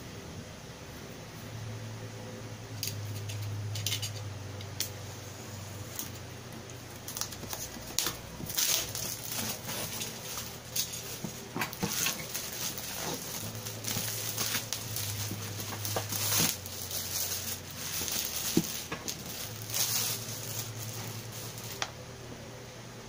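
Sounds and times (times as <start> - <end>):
plastic wrap crinkling: 5.9 - 21.9.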